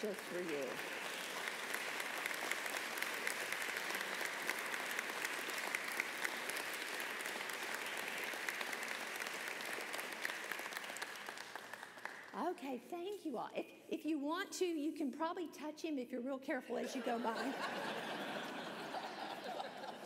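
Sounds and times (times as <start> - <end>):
congregation applauding: 0.0 - 12.4.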